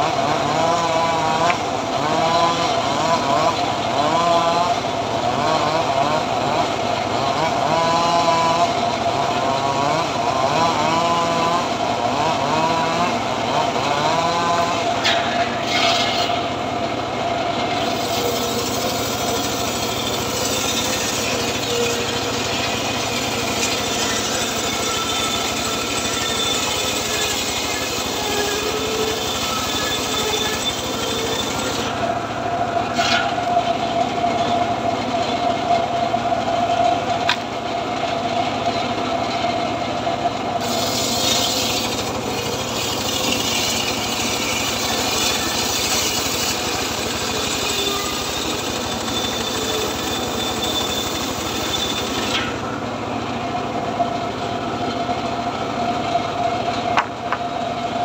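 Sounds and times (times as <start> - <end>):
table saw cutting wood: 0.0 - 57.7.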